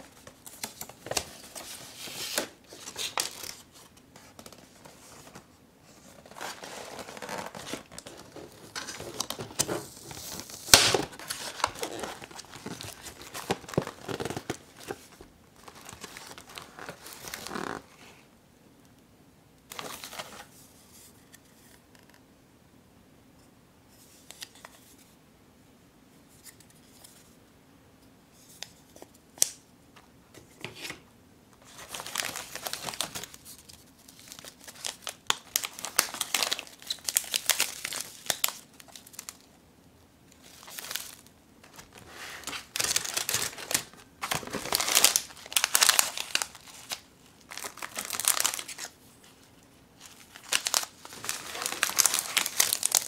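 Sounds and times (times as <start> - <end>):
plastic wrappers crinkling: 6.2 - 17.9, 31.6 - 39.5, 40.3 - 53.0.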